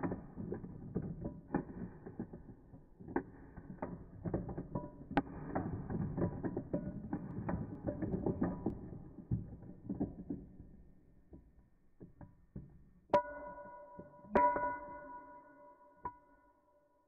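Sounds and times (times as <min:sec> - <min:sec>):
glass ringing tone: 0:13.2 - 0:16.6.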